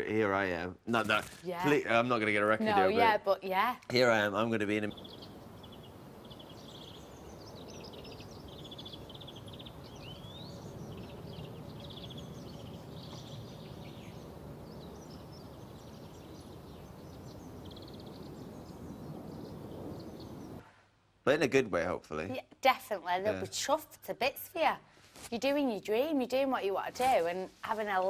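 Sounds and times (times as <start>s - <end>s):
small birds chirping: 1.0s - 20.6s
low outdoor rumble: 3.9s - 20.6s.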